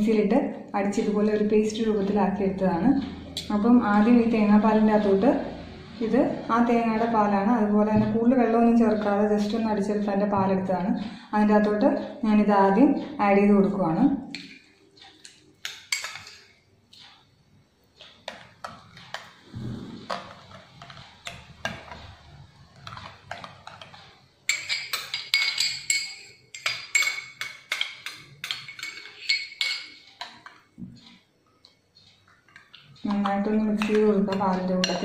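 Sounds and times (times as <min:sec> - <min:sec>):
metal spoon clinking in glass bowl: 0:15.6 - 0:16.5, 0:24.5 - 0:30.5, 0:32.5 - 0:35.0.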